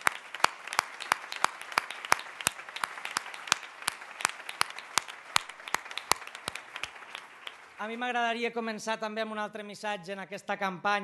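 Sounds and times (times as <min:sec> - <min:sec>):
sharp individual claps: 0:00.0 - 0:08.0
crowd applauding: 0:00.0 - 0:08.2.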